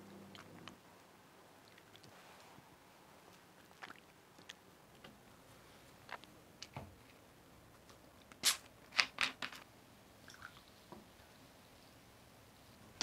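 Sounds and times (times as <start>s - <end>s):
faint pouring: 10.2s - 10.8s.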